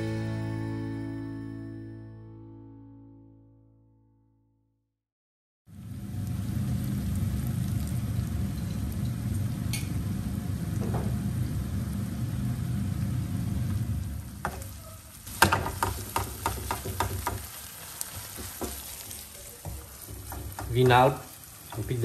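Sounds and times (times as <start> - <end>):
meat sizzling in a frying pan: 5.7 - 22.0
wooden spatula scraping pan: 14.5 - 22.0.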